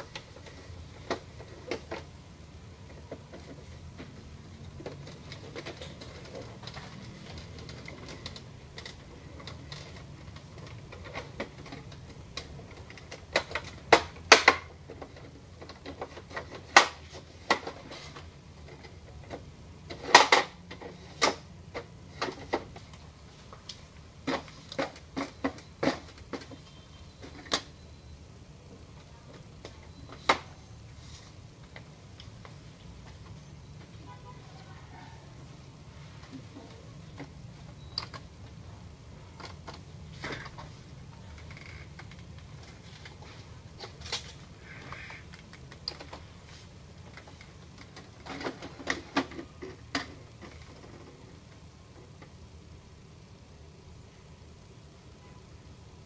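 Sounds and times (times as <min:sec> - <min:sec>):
plastic printer parts clicking: 0:02.8 - 0:23.0.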